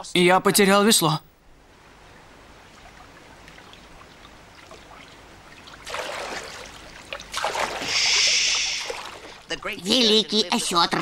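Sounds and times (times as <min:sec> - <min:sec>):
water trickling and lapping: 0:01.6 - 0:11.0
water splash: 0:04.5 - 0:09.5.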